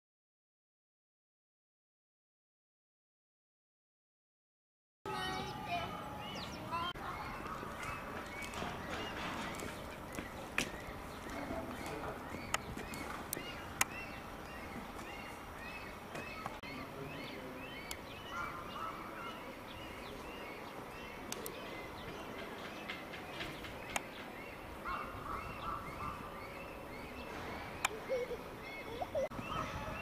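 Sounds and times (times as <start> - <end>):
birds chirping: 5.1 - 30.0
sharp clicks: 23.4 - 24.1.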